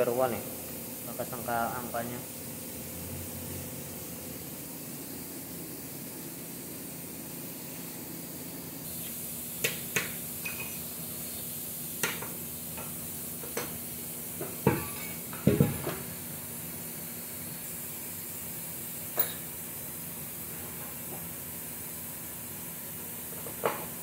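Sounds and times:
steady hiss and low hum: 0:00.0 - 0:24.0
metal tools clinking: 0:19.2 - 0:19.5.

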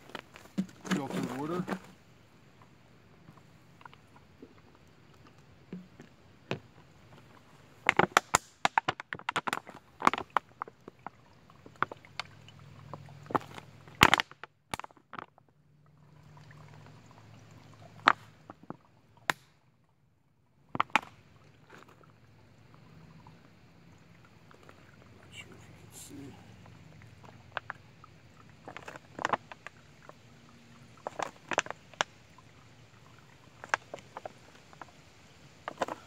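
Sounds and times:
plastic bottle crinkling: 0:00.0 - 0:02.0.

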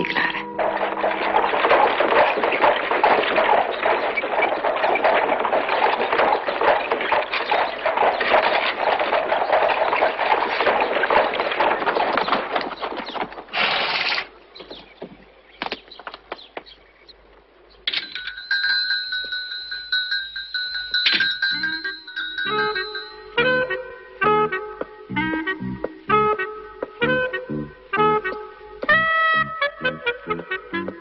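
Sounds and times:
carriage wheels rattling: 0:00.0 - 0:14.3, 0:17.9 - 0:23.5
horse hooves clip-clopping: 0:00.0 - 0:26.2.

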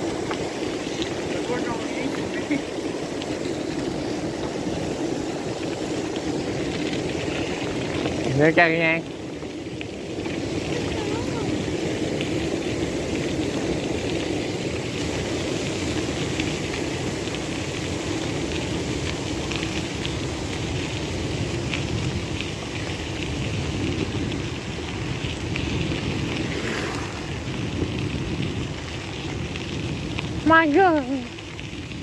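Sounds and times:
bike tyres crunching on gravel: 0:00.0 - 0:32.0.

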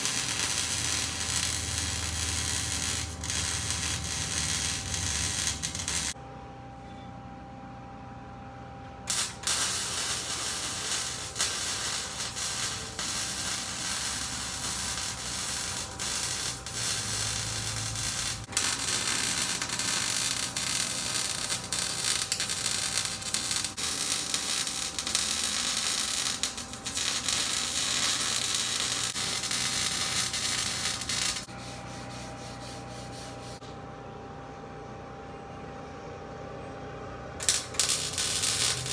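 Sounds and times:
welding arc crackling: 0:00.0 - 0:06.2, 0:09.1 - 0:33.6, 0:37.4 - 0:38.9.

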